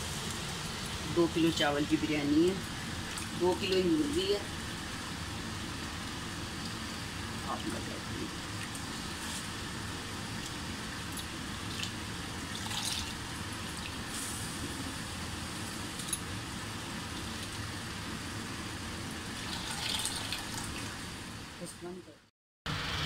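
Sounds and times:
water splashing in bowl: 0:19.4 - 0:20.9.

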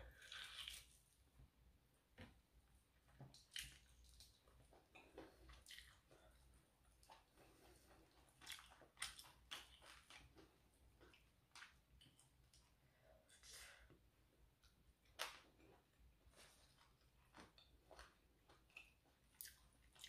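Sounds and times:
wet chewing and lip smacks: 0:03.3 - 0:12.7, 0:16.4 - 0:20.0.

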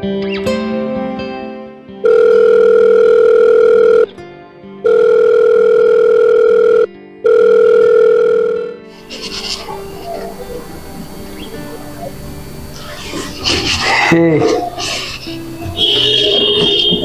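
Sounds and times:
soft guitar music: 0:00.0 - 0:03.1, 0:03.9 - 0:06.3, 0:06.9 - 0:17.0
telephone ringback tone: 0:02.0 - 0:04.1, 0:04.8 - 0:08.8.

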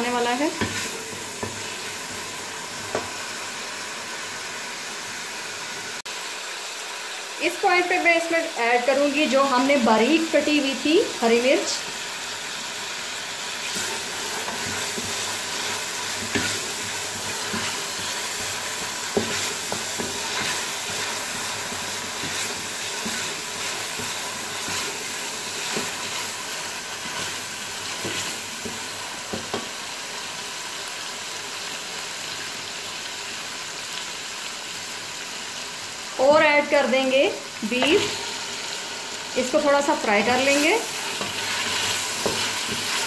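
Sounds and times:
oil sizzling in a pot: 0:00.0 - 0:43.0
spatula knocking and scraping pot: 0:00.5 - 0:01.8, 0:16.1 - 0:25.0, 0:40.4 - 0:43.0.

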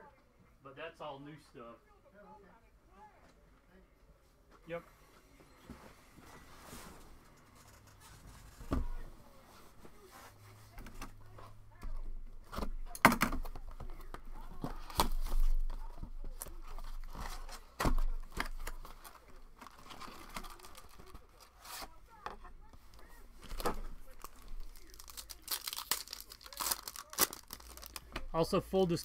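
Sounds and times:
foil packs crinkling: 0:18.1 - 0:21.9, 0:23.4 - 0:28.1.

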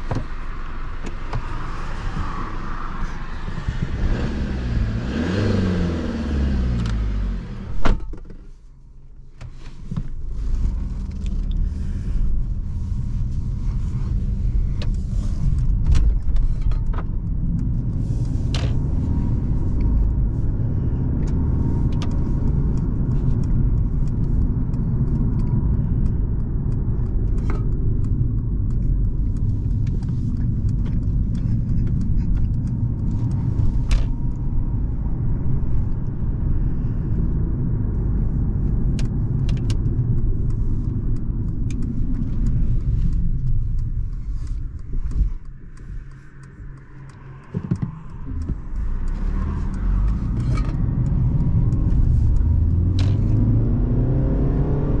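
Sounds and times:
car engine: 0:00.0 - 0:55.0
engine and tyre rumble: 0:00.0 - 0:55.0
light clicks: 0:13.3 - 0:55.0.

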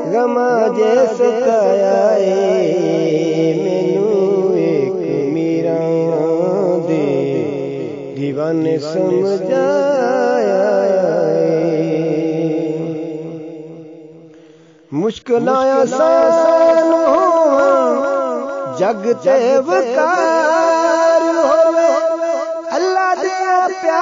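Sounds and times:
person singing devotional melody: 0:00.0 - 0:24.0.

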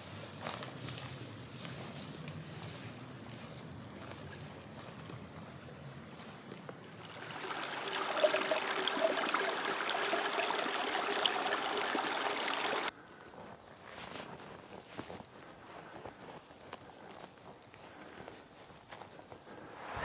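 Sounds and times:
water trickling and gurgling: 0:06.9 - 0:12.9.

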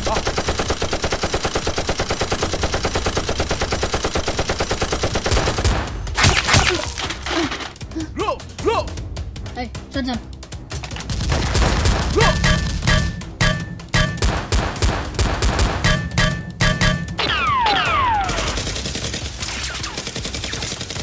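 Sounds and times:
rapid gunfire bursts: 0:00.0 - 0:06.6, 0:10.7 - 0:13.1, 0:13.9 - 0:16.2, 0:17.3 - 0:21.0.

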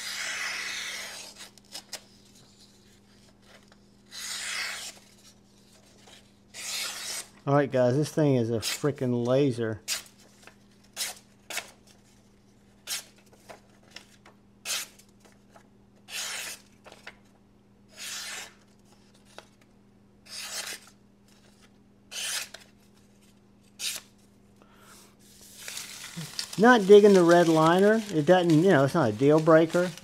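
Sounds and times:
knife slicing paper: 0:00.0 - 0:02.0, 0:04.1 - 0:05.3, 0:06.6 - 0:07.3, 0:16.1 - 0:17.0, 0:17.9 - 0:18.6, 0:20.3 - 0:21.0, 0:22.1 - 0:22.7, 0:25.4 - 0:30.0.

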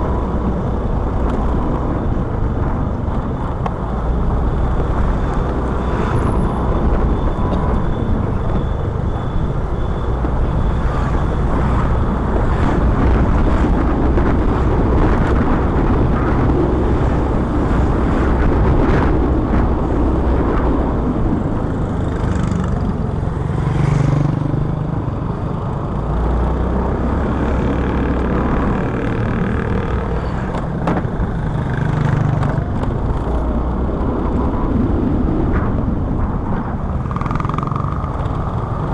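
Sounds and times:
motorcycle engine and tyres: 0:00.0 - 0:38.9
street traffic: 0:00.0 - 0:38.9
wind rumble on microphone: 0:00.0 - 0:38.9.

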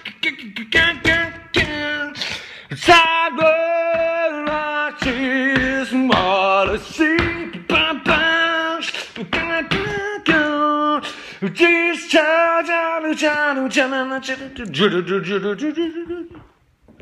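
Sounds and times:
percussive mouth sounds: 0:00.0 - 0:01.4
man singing a cappella: 0:00.0 - 0:16.6.

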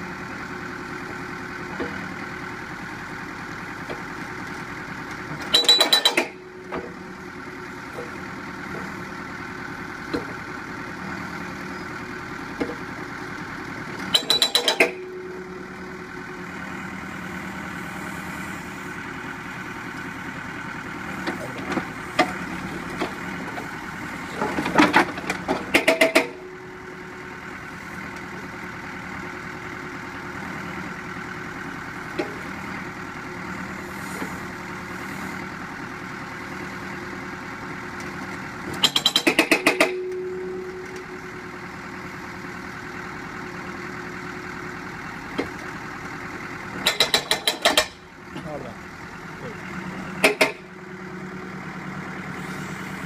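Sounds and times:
diesel engine running: 0:00.0 - 0:53.0
hydraulic breaker hammering concrete: 0:25.6 - 0:26.4, 0:38.8 - 0:40.2, 0:46.8 - 0:48.0, 0:50.2 - 0:50.7.

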